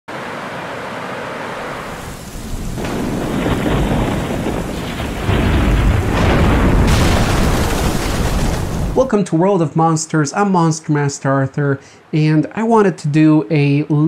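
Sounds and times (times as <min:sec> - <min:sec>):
rain: 0:00.1 - 0:09.1
water rushing: 0:00.1 - 0:12.9
deep rolling thunder: 0:02.0 - 0:09.1.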